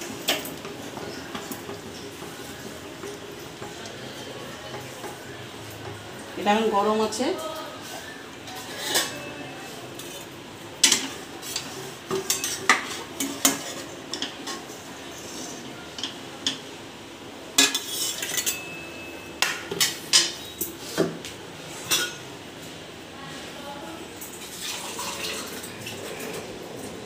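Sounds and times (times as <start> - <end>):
steel kitchenware clanking: 0.0 - 7.2, 8.4 - 16.6, 17.5 - 21.1, 21.8 - 22.3.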